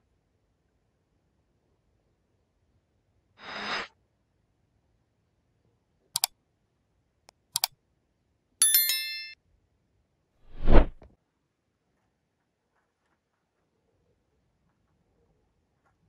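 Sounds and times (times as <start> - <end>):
bright ringing chime: 8.6 - 9.4
short swish: 10.5 - 11.0.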